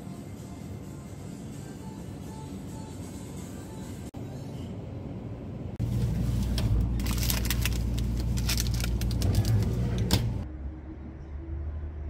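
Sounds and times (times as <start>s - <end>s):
plastic wrappers crinkling: 6.1s - 10.4s.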